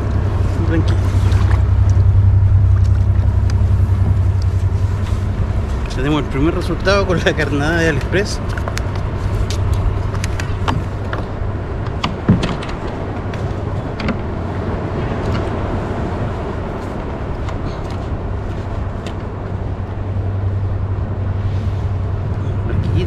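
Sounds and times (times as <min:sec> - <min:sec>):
wind and water rumbling: 0:00.0 - 0:23.0.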